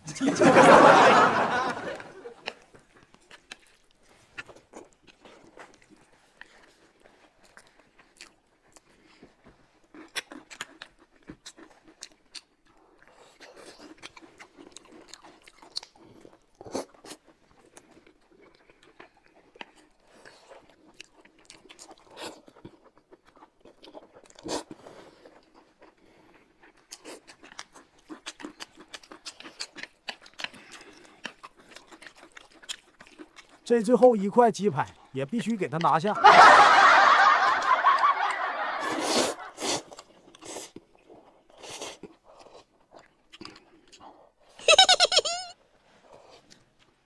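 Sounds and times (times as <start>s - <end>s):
chewing and crunchy bites: 1.9s - 36.1s, 38.8s - 44.6s, 45.8s - 47.0s.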